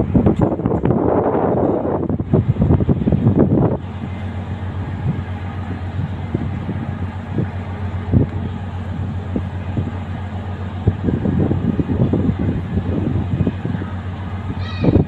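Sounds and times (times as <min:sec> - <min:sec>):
low engine-like hum: 0:00.0 - 0:15.0
low rumbles: 0:00.0 - 0:15.0.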